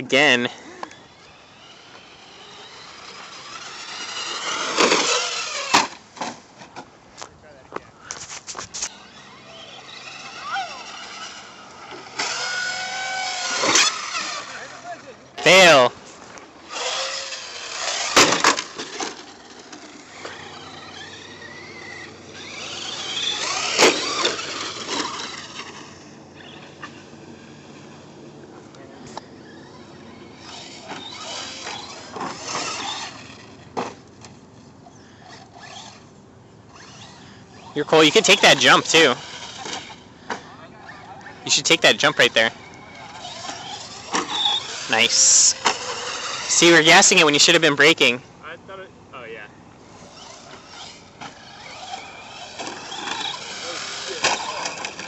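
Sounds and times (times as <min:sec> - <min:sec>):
toy car motor whining: 0:00.0 - 0:06.4, 0:08.0 - 0:55.0
tyres on dirt: 0:00.0 - 0:55.0
toy car landing thuds on dirt: 0:18.0 - 0:19.2.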